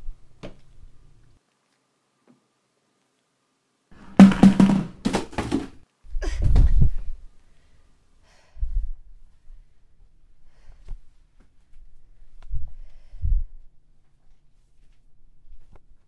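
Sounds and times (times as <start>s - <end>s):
loud knocks and clatter: 4.0s - 5.8s.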